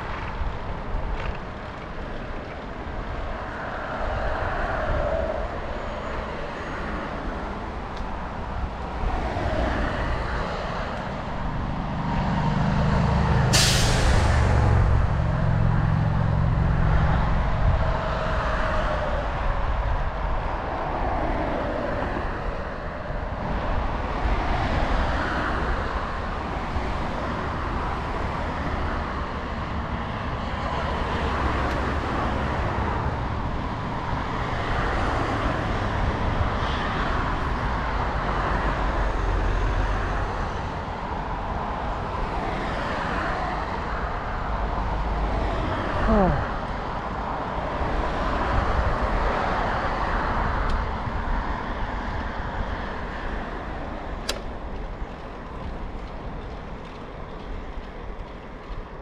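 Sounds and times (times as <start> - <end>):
wind rumbling on microphone: 0.0 - 13.5, 14.3 - 59.0
cars passing: 0.0 - 59.0
bicycle tyres on asphalt: 51.0 - 59.0.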